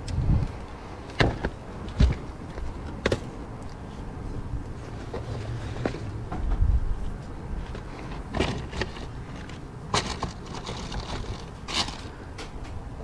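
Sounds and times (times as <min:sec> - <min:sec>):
steady low rumble: 0:00.0 - 0:13.0
loose items knocking and clattering: 0:07.7 - 0:12.8.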